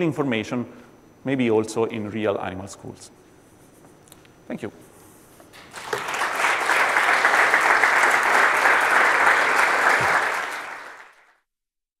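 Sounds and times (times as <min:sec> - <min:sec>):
audience applauding: 0:05.6 - 0:11.4.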